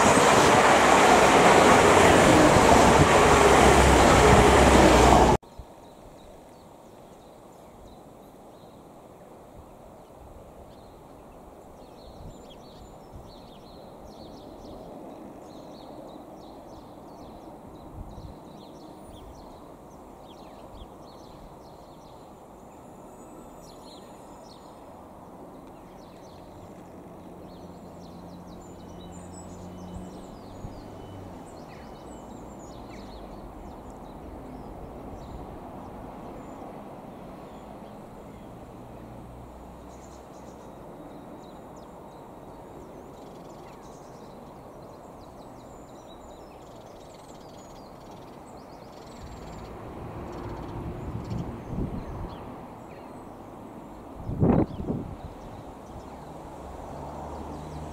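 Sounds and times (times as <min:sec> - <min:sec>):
diesel engine drone: 0:00.0 - 0:05.4
train rumbling: 0:00.0 - 0:05.4.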